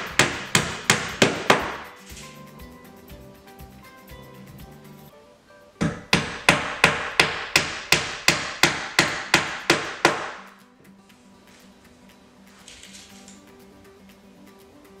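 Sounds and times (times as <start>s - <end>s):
hammer driving nail into wood: 0.0s - 2.3s, 5.8s - 10.6s.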